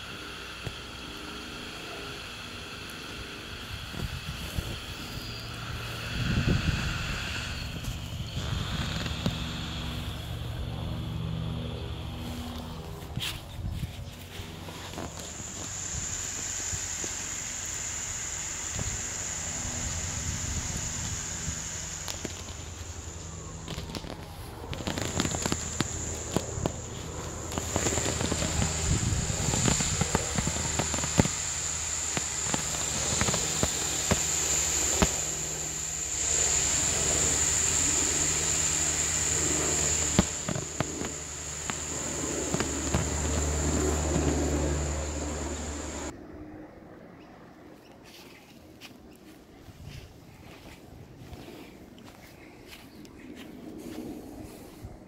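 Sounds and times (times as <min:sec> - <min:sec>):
air hissing out of a valve: 0:00.0 - 0:10.6, 0:14.5 - 0:46.1
steady high whine: 0:00.0 - 0:55.0
crackles and clicks: 0:14.2 - 0:46.1.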